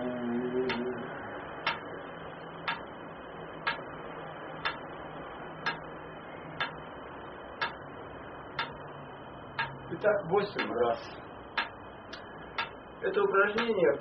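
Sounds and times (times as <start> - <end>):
metronome ticking: 0.6 - 1.0, 1.6 - 3.0, 3.6 - 4.0, 4.6 - 5.0, 5.6 - 5.9, 6.6 - 6.9, 7.6 - 14.0.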